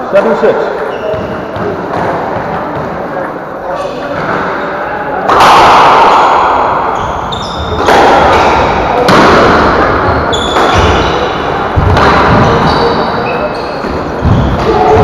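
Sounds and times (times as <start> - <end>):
shoe squeaks: 0.8 - 1.7, 7.0 - 8.7, 10.1 - 11.4, 12.3 - 15.0
squash ball hits echoing: 1.0 - 3.1, 4.0 - 15.0.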